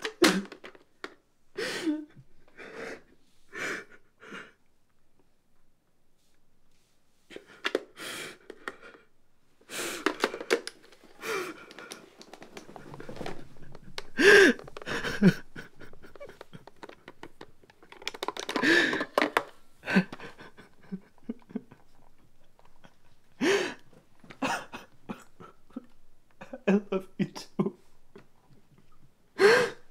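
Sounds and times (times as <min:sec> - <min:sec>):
man breathing heavily and gasping: 0:01.6 - 0:04.6, 0:07.3 - 0:09.1, 0:09.7 - 0:16.9, 0:18.4 - 0:21.5, 0:23.4 - 0:25.8, 0:29.4 - 0:29.9.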